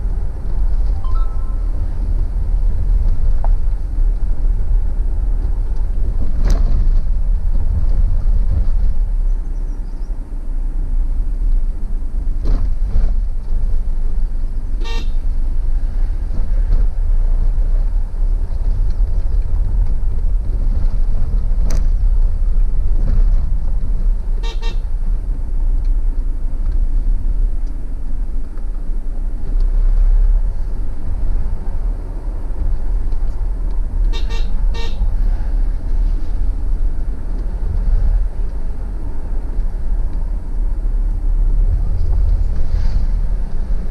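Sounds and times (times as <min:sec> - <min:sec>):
car driving rumble: 0:00.0 - 0:43.9
car horn toots: 0:14.8 - 0:15.2, 0:24.4 - 0:24.9, 0:34.1 - 0:35.1.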